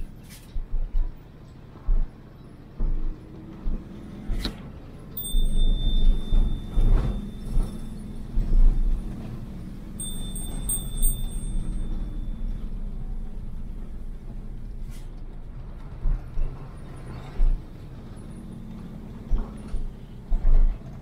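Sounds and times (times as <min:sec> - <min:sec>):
vehicle engine and road rumble: 0:00.0 - 0:21.0
low thuds: 0:00.6 - 0:04.5
high ringing tone: 0:05.2 - 0:13.6.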